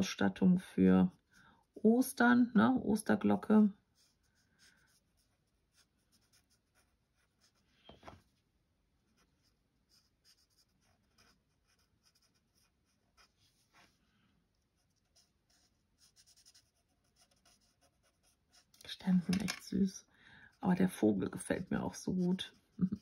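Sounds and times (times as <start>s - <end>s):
marker scratching on card: 3.9s - 7.7s, 9.1s - 13.9s, 14.7s - 19.3s, 20.9s - 23.0s.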